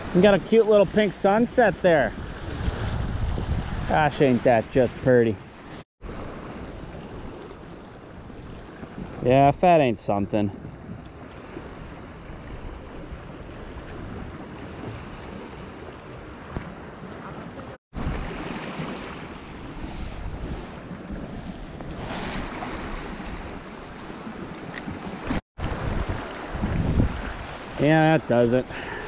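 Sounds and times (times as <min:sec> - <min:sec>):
wind rumbling on microphone: 0:01.7 - 0:09.2, 0:10.4 - 0:29.0
waves washing on shore: 0:11.2 - 0:29.0.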